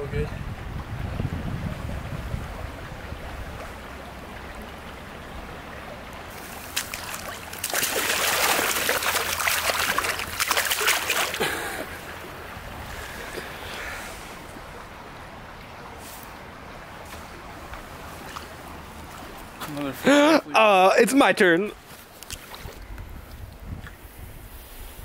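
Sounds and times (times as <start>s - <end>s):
wind rumble on microphone: 0.0s - 5.7s, 22.5s - 25.0s
stream flowing: 0.0s - 24.2s
water splashing in a creek: 0.5s - 20.6s, 22.1s - 22.9s.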